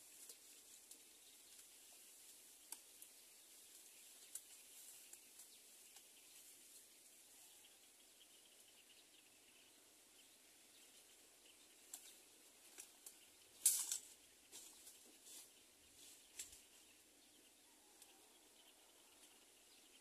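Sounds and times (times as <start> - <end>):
rustling in dry leaves: 0.0 - 7.7, 11.8 - 17.2.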